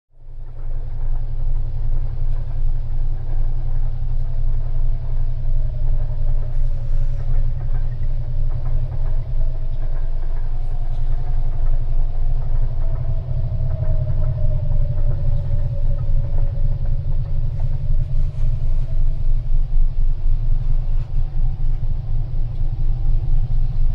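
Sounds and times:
deep low rumble: 0:00.1 - 0:23.9
faint wavering tone: 0:00.2 - 0:23.9.

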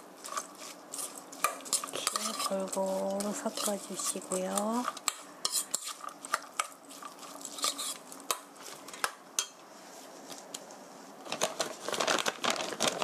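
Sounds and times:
food mixed in a metal bowl: 0:00.0 - 0:10.0.

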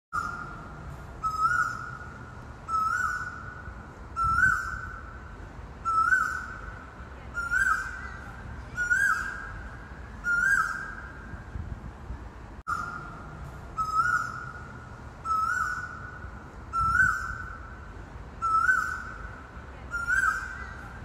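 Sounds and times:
bird whistling call: 0:01.2 - 0:03.6, 0:04.2 - 0:05.0, 0:05.8 - 0:06.6, 0:07.4 - 0:09.6, 0:10.2 - 0:11.2, 0:13.8 - 0:17.7, 0:18.4 - 0:19.3, 0:19.9 - 0:21.0.

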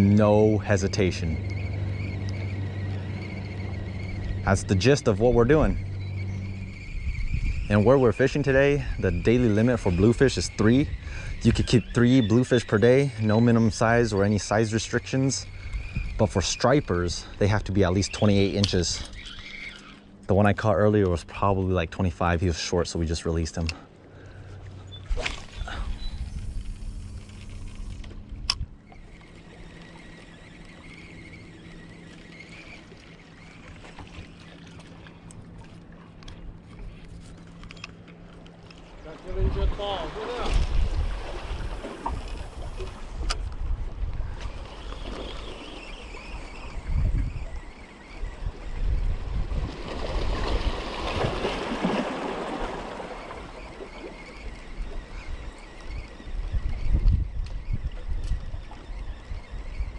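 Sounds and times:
wind buffeting microphone: 0:00.0 - 0:21.6, 0:24.9 - 0:34.6, 0:38.9 - 0:59.9
distant motorboat engine: 0:00.0 - 0:59.9
water washing against rocks: 0:49.5 - 0:54.2.

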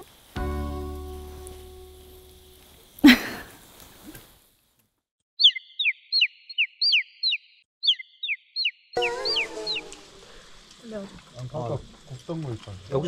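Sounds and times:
birds tweeting sound effect: 0:05.4 - 0:10.6.

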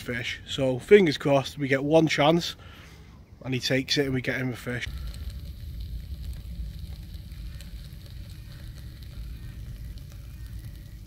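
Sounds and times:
faint crackles: 0:04.4 - 0:11.0
steady low rumble: 0:04.8 - 0:11.0
bacon sizzling in a frying pan: 0:04.9 - 0:11.0.

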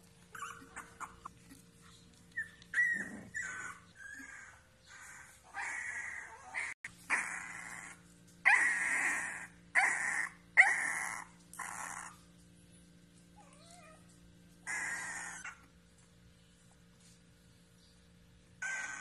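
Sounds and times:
puppy whimper: 0:00.3 - 0:01.6, 0:02.3 - 0:12.2, 0:13.4 - 0:14.1, 0:14.7 - 0:15.7, 0:18.6 - 0:19.0
puppy squealing cries: 0:02.5 - 0:12.1, 0:14.7 - 0:15.6, 0:18.6 - 0:19.0.

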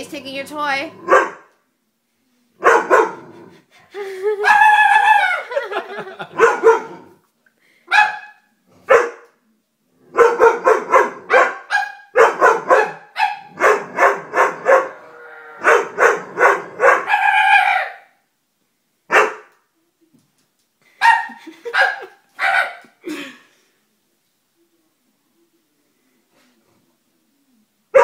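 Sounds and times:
dog barking: 0:01.0 - 0:01.5, 0:02.6 - 0:03.2, 0:06.2 - 0:07.0, 0:07.9 - 0:09.4, 0:10.1 - 0:15.0, 0:15.6 - 0:18.1, 0:19.1 - 0:19.5, 0:21.0 - 0:22.9.

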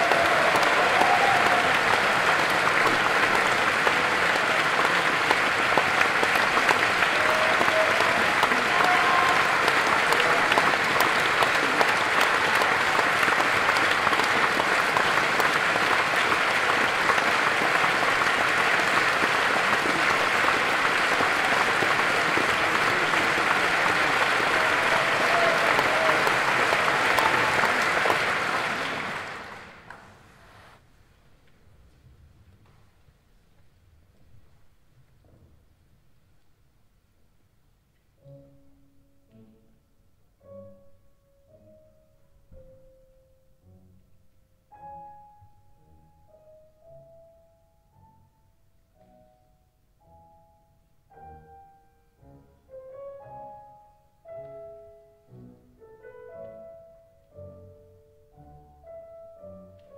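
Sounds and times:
audience applauding: 0:00.0 - 0:30.3.

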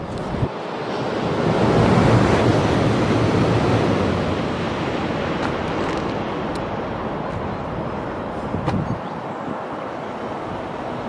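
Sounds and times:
train passing at speed: 0:00.6 - 0:08.7.

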